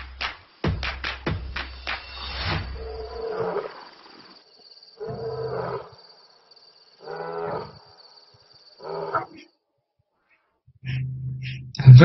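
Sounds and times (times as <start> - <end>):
deep animal calls: 2.8 - 4.0, 5.0 - 6.0, 8.8 - 9.5, 10.3 - 12.0.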